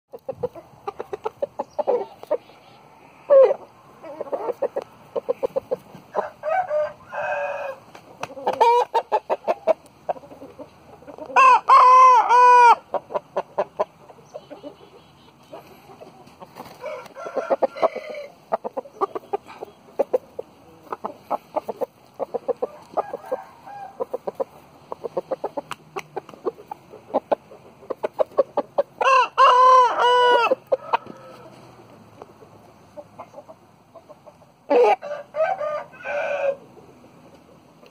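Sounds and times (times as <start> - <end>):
roosters clucking: 0.1 - 37.9
rooster crowing: 6.1 - 7.9, 11.4 - 12.8, 16.7 - 18.4, 22.6 - 24.1, 29.0 - 31.8, 34.7 - 36.7.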